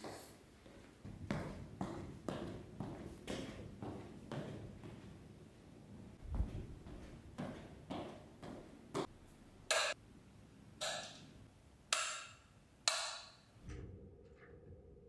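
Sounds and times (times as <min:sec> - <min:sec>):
slipper footsteps on tile: 0:06.2 - 0:09.1.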